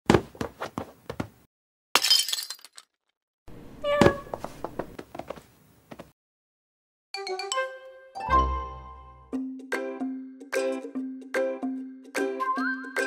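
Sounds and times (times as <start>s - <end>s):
vase smashing on floor: 2.0s - 2.8s
pieces clinking: 2.0s - 3.0s.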